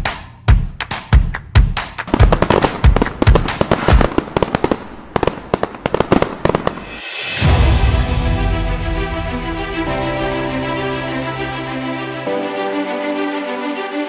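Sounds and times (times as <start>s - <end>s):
fireworks bangs and crackling: 2.0s - 8.0s.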